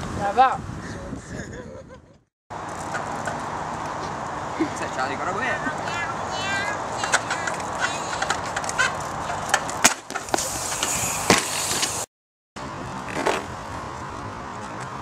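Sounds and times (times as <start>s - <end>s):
outdoor background noise: 0.0s - 15.0s
trials bike clattering: 2.6s - 3.6s.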